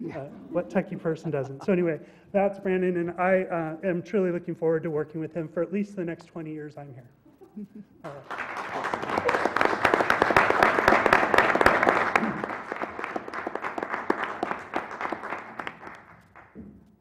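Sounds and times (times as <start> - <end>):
audience applauding: 8.1 - 16.6.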